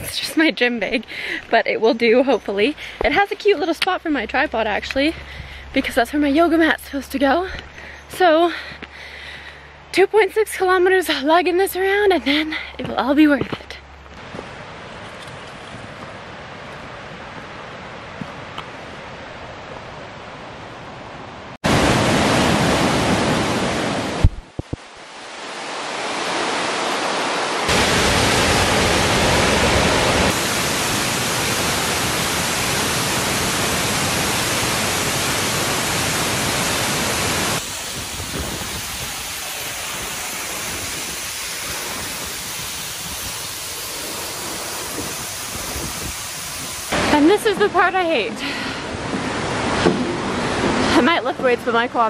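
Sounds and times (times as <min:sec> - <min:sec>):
waterfall roaring: 0:14.2 - 0:52.0.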